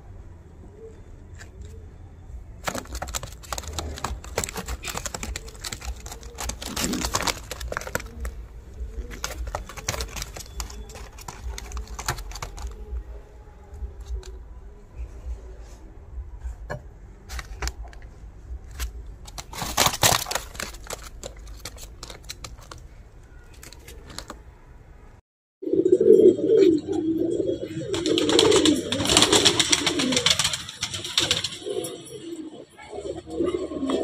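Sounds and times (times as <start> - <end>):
pigeons cooing: 2.9 - 13.2, 25.6 - 34.0
clicks and light rustles: 17.3 - 24.4.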